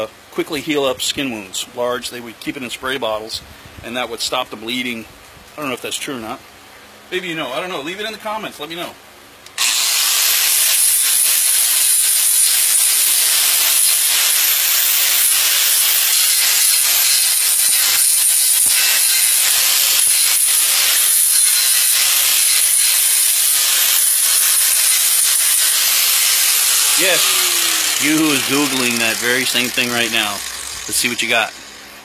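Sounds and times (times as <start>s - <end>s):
handheld grinder on metal: 9.6s - 32.0s.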